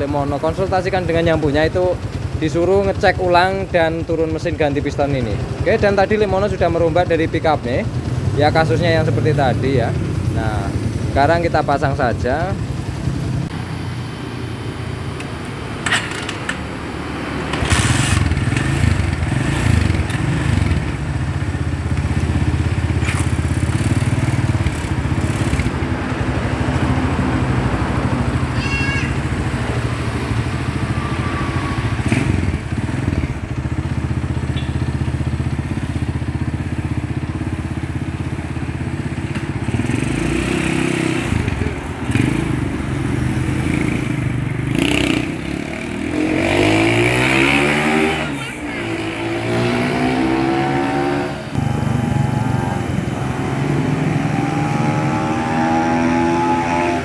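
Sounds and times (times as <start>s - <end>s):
motorcycle pulling away: 0.0s - 14.6s, 15.8s - 57.0s
motorcycle engine running: 0.0s - 15.2s, 16.8s - 57.0s.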